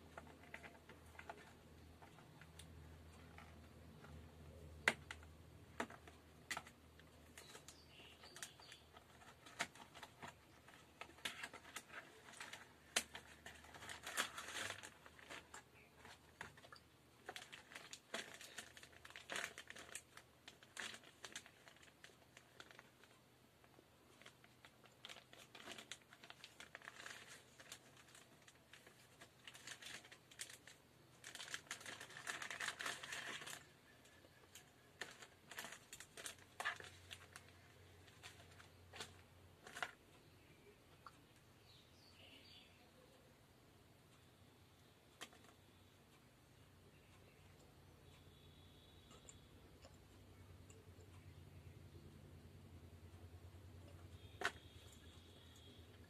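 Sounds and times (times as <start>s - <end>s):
plastic bag crinkling: 0.0s - 4.2s, 4.8s - 23.2s, 24.1s - 40.0s, 53.9s - 56.0s.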